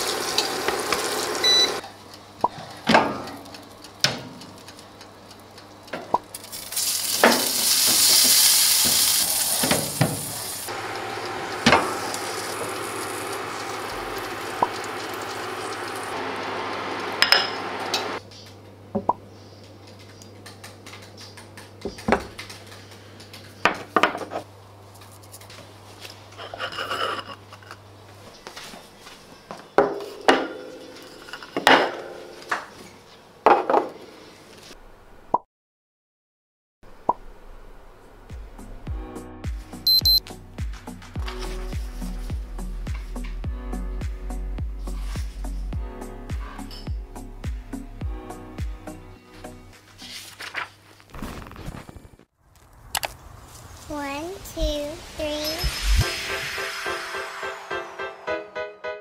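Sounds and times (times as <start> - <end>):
steak sizzling in a frying pan: 6.3 - 18.2
plates and cutlery clinking: 17.2 - 17.7.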